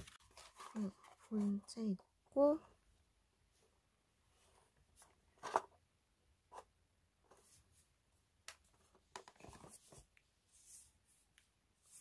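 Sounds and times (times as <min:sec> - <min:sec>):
rustling and knocking of plastic: 0:08.6 - 0:10.1.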